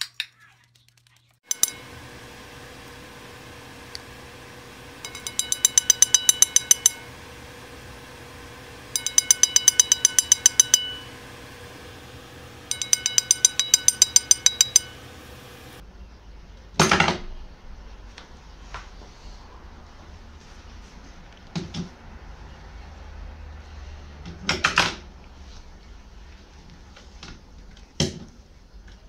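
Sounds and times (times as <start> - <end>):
beak tapping on ceramic plate: 5.0 - 7.1, 8.8 - 11.2, 12.7 - 15.1.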